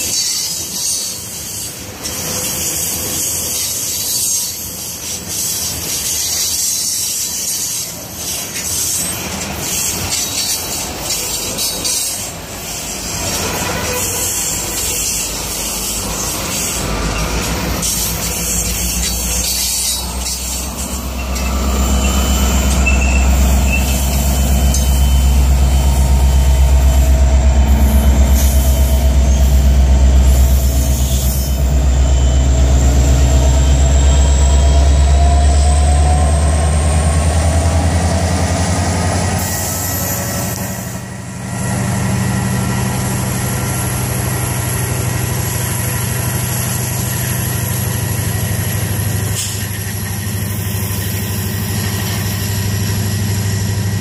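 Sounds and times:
high-pitched wheel squeal: 0.0 - 41.2
diesel locomotive engine rumble: 0.0 - 54.0
freight cars rolling by: 0.0 - 54.0.

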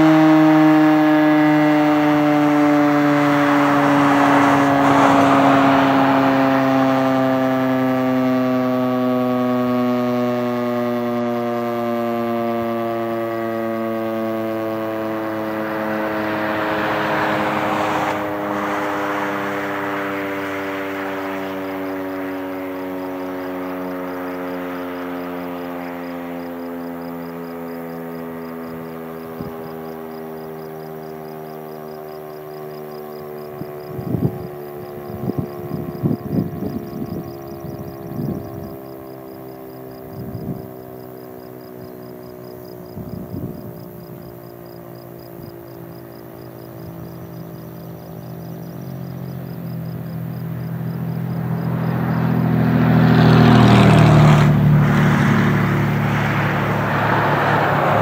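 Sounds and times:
siren winding down: 0.0 - 42.4, 49.7 - 58.0
passing vehicle rumble: 0.0 - 58.0.

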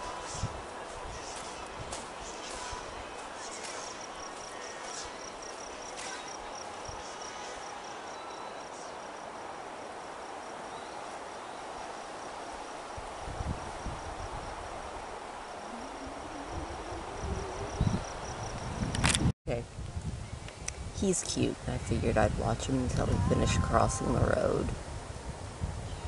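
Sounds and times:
outdoor hiss: 0.0 - 17.3
insect calling in high pulse: 15.4 - 19.1.

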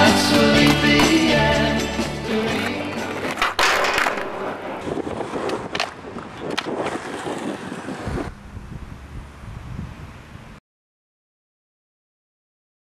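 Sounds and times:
skateboard wheels rolling: 0.0 - 9.4
skateboard clacks: 2.4 - 8.1.

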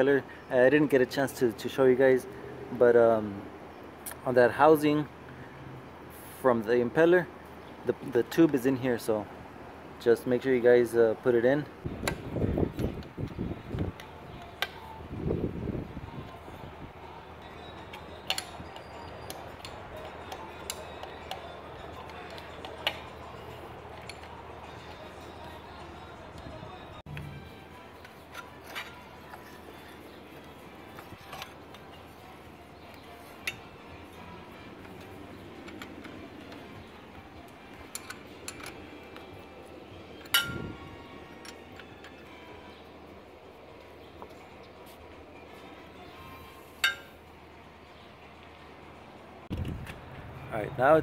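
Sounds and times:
metallic clicks and taps: 17.9 - 23.2, 37.4 - 39.3.

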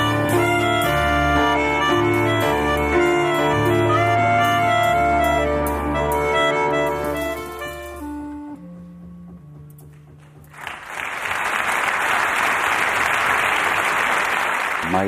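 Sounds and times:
audience applause: 10.5 - 15.0.

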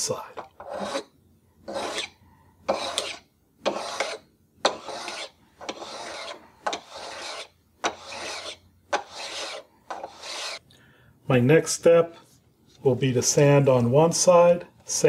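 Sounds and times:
hand grater scraping filler: 0.6 - 1.1, 1.7 - 2.1, 2.7 - 10.6.

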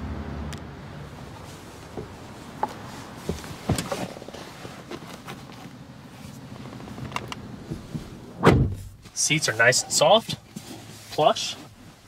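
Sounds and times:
heavy thump: 7.7 - 9.0.

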